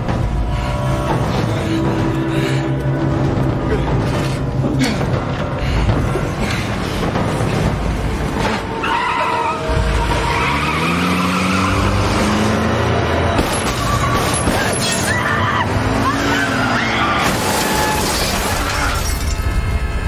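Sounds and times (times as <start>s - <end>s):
car engine revving: 6.9s - 14.8s
tyres squealing and skidding: 8.3s - 12.7s, 13.4s - 19.4s.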